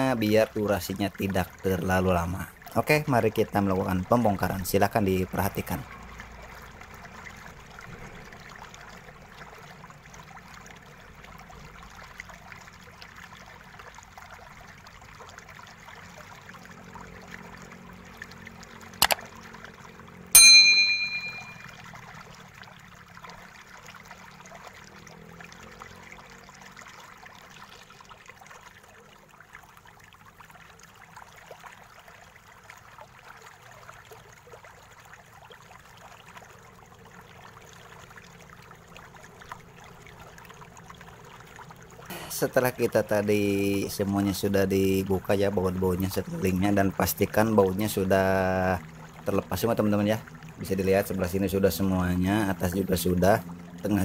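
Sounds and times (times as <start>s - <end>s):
bright bell ding: 20.4s - 21.6s
faint steady hiss: 42.0s - 45.4s.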